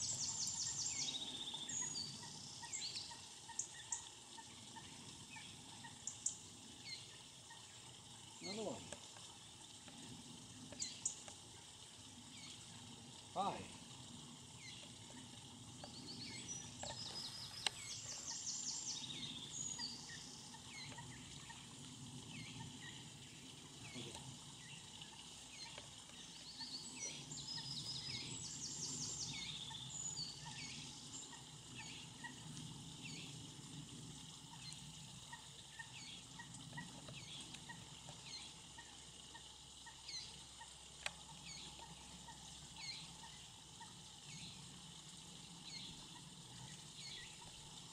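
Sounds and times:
songbird singing: 0:00.0 - 0:07.8, 0:14.6 - 0:21.7, 0:22.3 - 0:32.4
water rushing over weir: 0:08.0 - 0:18.4.

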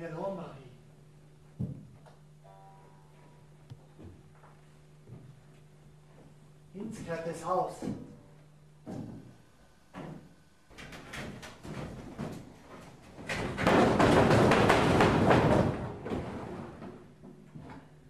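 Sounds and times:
footsteps on wooden boards: 0:03.8 - 0:06.4, 0:08.8 - 0:09.4.

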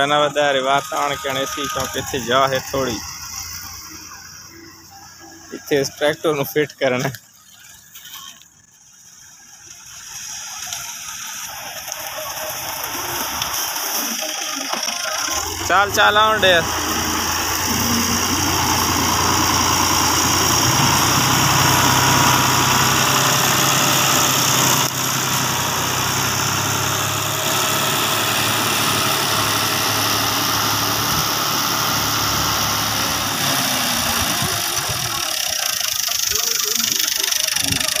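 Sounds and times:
tractor diesel engine running: 0:00.0 - 0:38.0.

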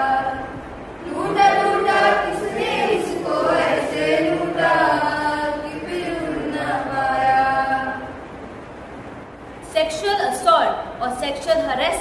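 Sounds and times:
group of voices singing: 0:00.0 - 0:08.2.

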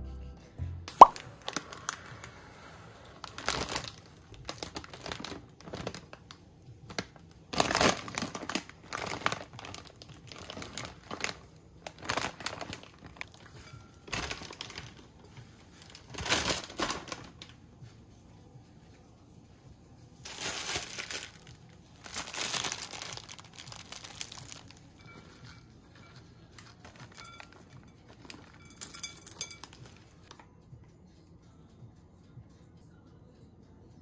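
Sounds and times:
plastic bag crinkling: 0:01.0 - 0:02.4, 0:03.0 - 0:17.6, 0:20.2 - 0:30.4.

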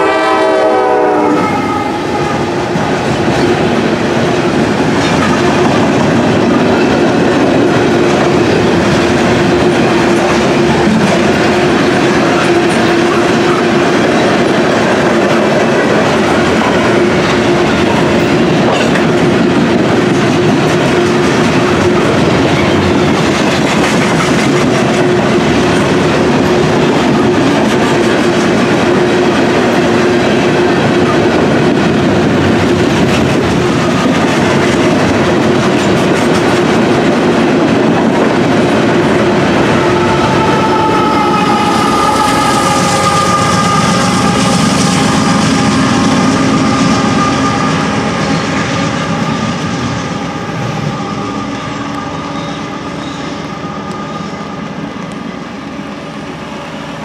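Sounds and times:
train wheels clattering: 0:00.0 - 0:54.1
locomotive engine whining: 0:28.4 - 0:56.9.

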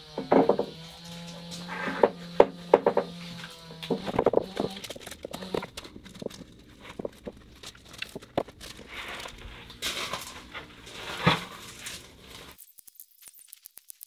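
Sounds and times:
boards knocking and scraping: 0:00.0 - 0:12.6.

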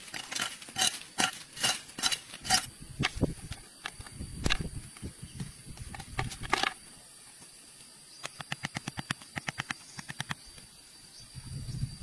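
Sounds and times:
scraping in dirt and dry leaves: 0:00.0 - 0:03.8
hammer tapping stick into ground: 0:08.2 - 0:10.6.

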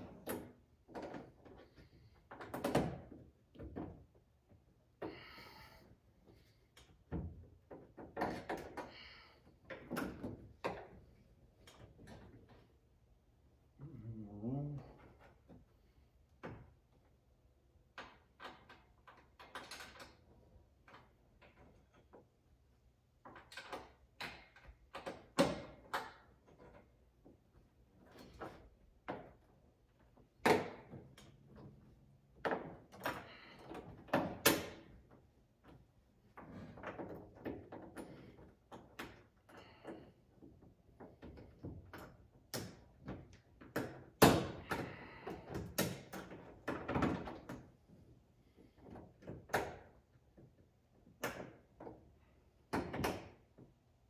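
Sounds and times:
knocks clicks and taps of hand work: 0:36.4 - 0:47.7.

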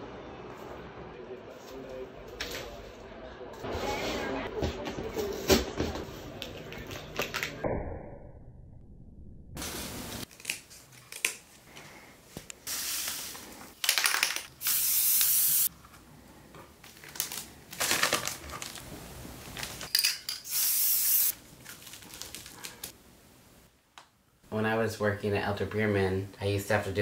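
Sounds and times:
craft materials rustling: 0:15.4 - 0:20.5, 0:21.2 - 0:23.0.

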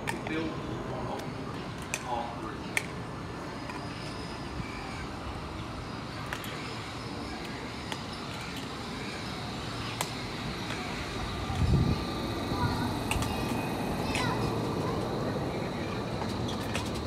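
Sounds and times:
faint high whine: 0:00.0 - 0:17.0
train wheels rumbling on rail: 0:10.3 - 0:17.0.

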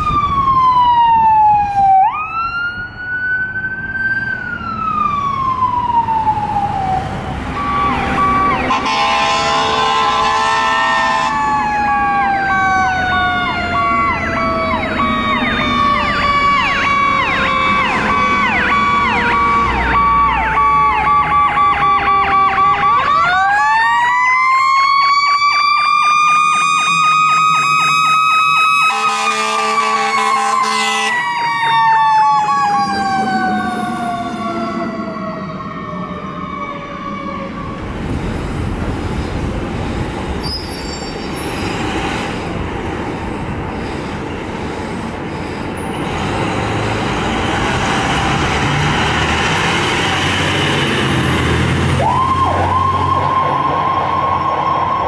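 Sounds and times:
electronic siren wailing and yelping: 0:04.6 - 0:37.9, 0:51.9 - 0:55.0
siren winding up: 0:07.5 - 0:09.3, 0:11.0 - 0:29.3, 0:52.0 - 0:55.0
vehicle horn blasts: 0:08.7 - 0:11.4, 0:28.9 - 0:31.2.

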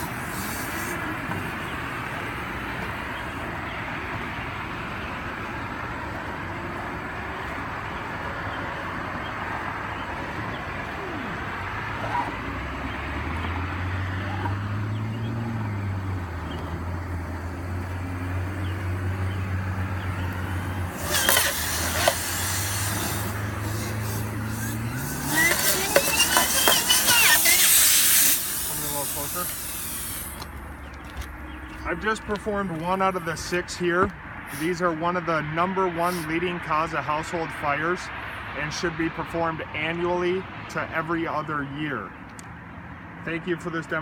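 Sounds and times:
compressed air rushing through duct: 0:00.0 - 0:01.2, 0:18.4 - 0:30.5
wavering whine: 0:19.2 - 0:30.5.

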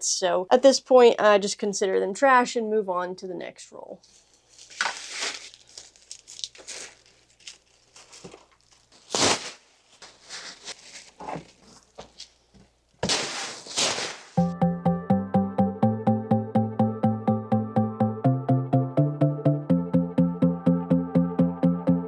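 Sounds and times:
plastic bag rustling: 0:04.1 - 0:12.2, 0:13.0 - 0:14.4.

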